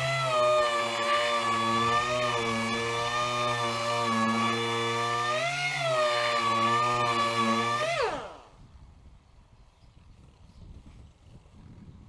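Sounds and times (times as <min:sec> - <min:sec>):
air sander whine: 0:00.0 - 0:08.6.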